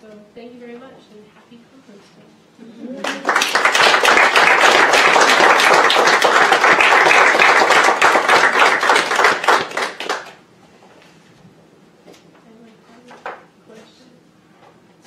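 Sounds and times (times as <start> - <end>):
audience applauding: 3.0 - 10.4.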